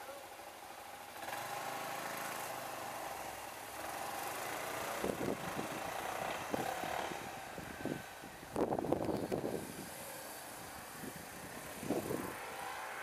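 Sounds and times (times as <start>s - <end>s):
scooter engine revving: 0.8s - 13.0s.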